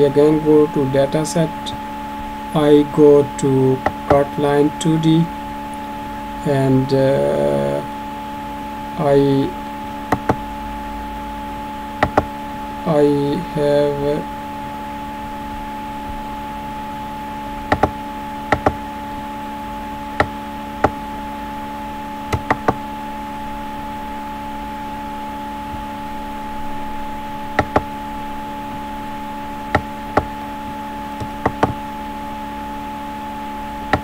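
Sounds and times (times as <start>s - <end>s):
steady tonal hum: 0.0s - 34.0s
computer mouse clicking: 12.0s - 12.3s, 27.6s - 27.8s.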